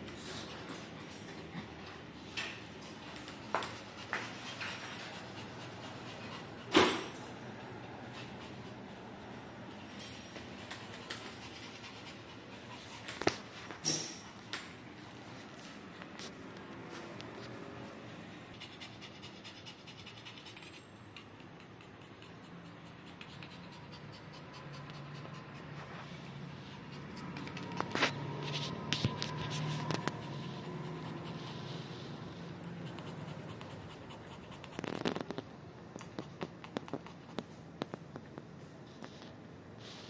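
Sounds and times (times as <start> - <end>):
dogs scratching on wooden floor: 24.5 - 38.1.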